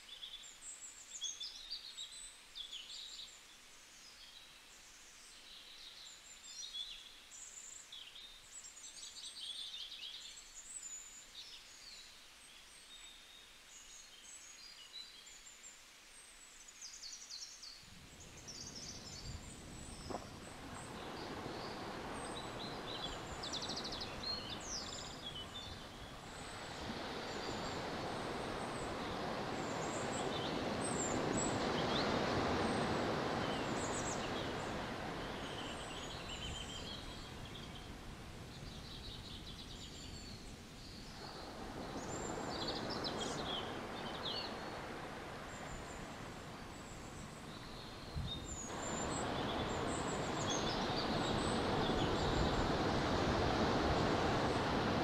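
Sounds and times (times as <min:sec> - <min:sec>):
small birds chirping: 0:16.7 - 0:55.0
ocean surf: 0:17.9 - 0:38.6, 0:41.0 - 0:55.0.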